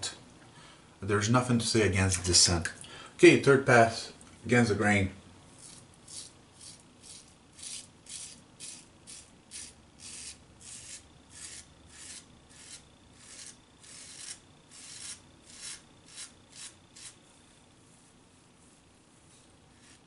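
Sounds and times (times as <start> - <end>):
razor scraping stubble: 5.6 - 17.2, 19.7 - 20.0.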